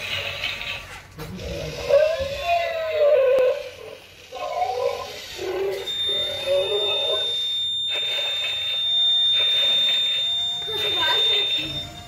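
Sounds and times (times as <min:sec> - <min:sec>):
toy dinosaur electronic roars: 0:01.2 - 0:07.0
steady high-pitched electronic tone: 0:04.4 - 0:12.0.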